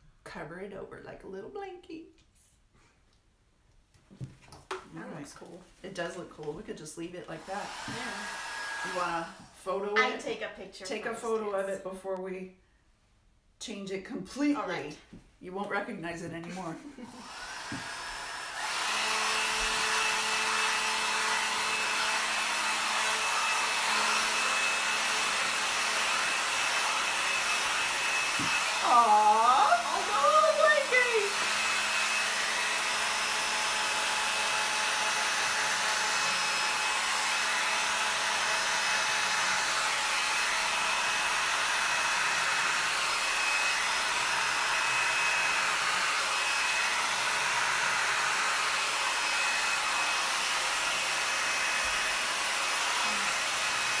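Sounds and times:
hair dryer blowing: 0:06.1 - 0:11.7, 0:16.5 - 0:54.0
person's voice: 0:08.9 - 0:12.5, 0:13.6 - 0:16.9, 0:28.8 - 0:31.5.

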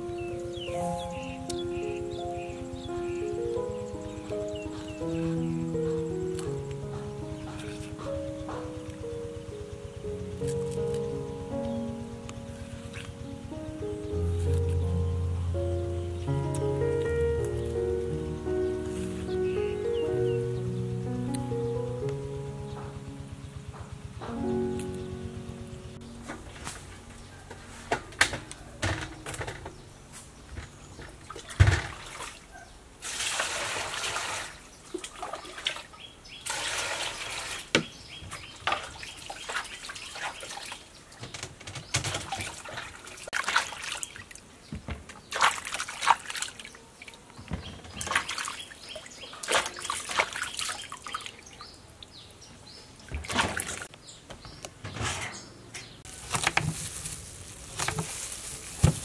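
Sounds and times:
water splashing in metal basin: 0:31.2 - 0:37.7, 0:38.6 - 0:40.9, 0:42.0 - 0:44.4, 0:45.2 - 0:46.8, 0:47.9 - 0:51.5, 0:53.1 - 0:53.9.

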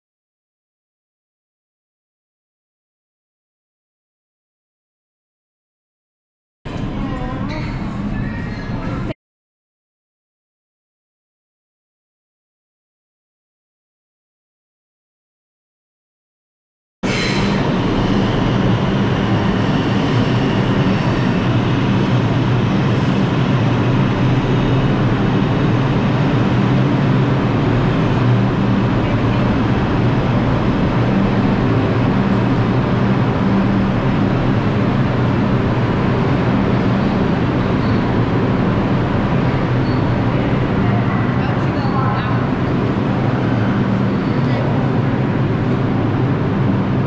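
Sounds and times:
train wheels rumbling on track: 0:17.0 - 0:47.0
low hum: 0:17.1 - 0:47.0.

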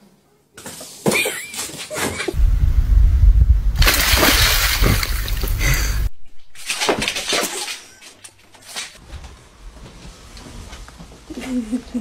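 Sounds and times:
heavy low rumble: 0:02.4 - 0:06.2
dog splashing through water: 0:03.8 - 0:08.0.

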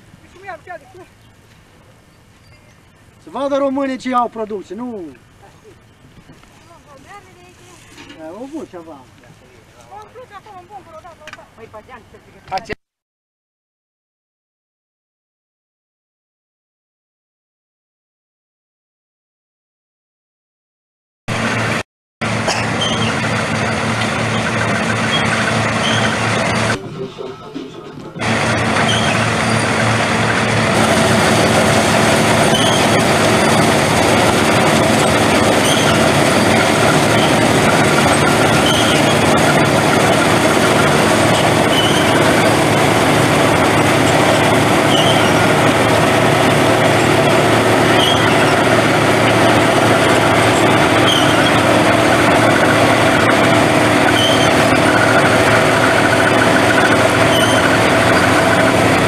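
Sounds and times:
combine harvester running: 0:00.0 - 0:12.7, 0:21.3 - 0:59.0
short high squeak: 0:22.6 - 0:27.9, 0:28.5 - 0:30.4, 0:31.0 - 0:34.3, 0:34.9 - 0:42.9, 0:44.8 - 0:45.6, 0:47.8 - 0:49.6, 0:50.5 - 0:51.7, 0:53.3 - 0:58.7.

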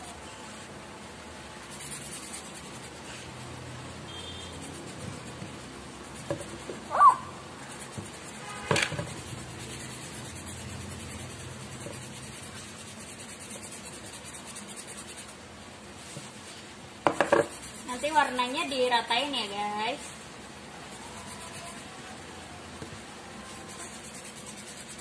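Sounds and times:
marker rubbing on cardboard: 0:01.6 - 0:06.9, 0:07.5 - 0:15.4, 0:16.0 - 0:18.8, 0:20.8 - 0:22.0, 0:23.4 - 0:25.0
tape roll knocking on table: 0:08.6 - 0:09.1, 0:17.0 - 0:17.5.

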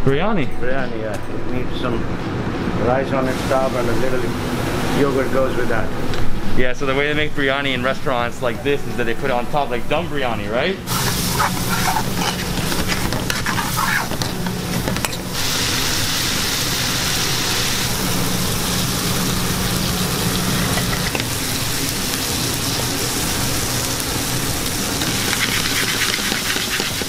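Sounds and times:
spatula scraping and tapping pan: 0:10.9 - 0:15.2, 0:25.0 - 0:27.0
sauce and rice sizzling in pan: 0:10.9 - 0:27.0.

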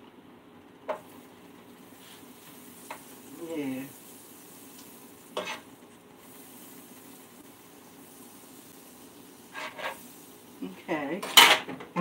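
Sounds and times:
butter sizzling in a skillet: 0:00.9 - 0:11.6
utensil scraping a pan: 0:04.7 - 0:07.0, 0:08.6 - 0:10.4.

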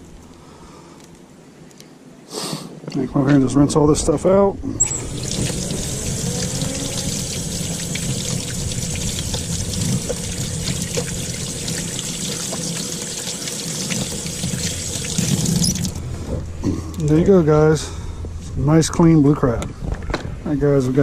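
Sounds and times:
water splashing from faucet: 0:04.8 - 0:16.0.

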